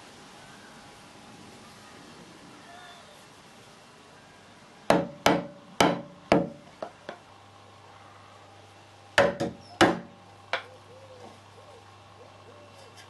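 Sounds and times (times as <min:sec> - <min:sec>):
chisel striking wood: 0:04.9 - 0:06.6, 0:09.2 - 0:10.1.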